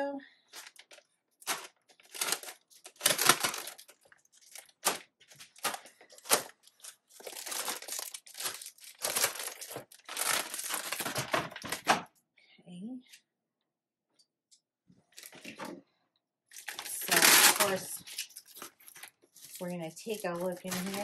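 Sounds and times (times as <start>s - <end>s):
plastic bags crinkling and tearing: 0.4s - 12.0s, 16.5s - 21.0s.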